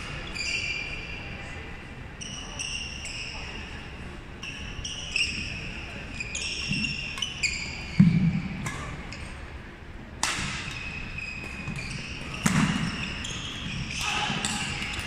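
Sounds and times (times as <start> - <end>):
shoes squeaking on wooden court: 0.0 - 1.4, 2.2 - 3.7, 4.4 - 9.4, 10.4 - 15.0
racket hitting shuttlecock: 10.2 - 10.8, 11.4 - 13.1.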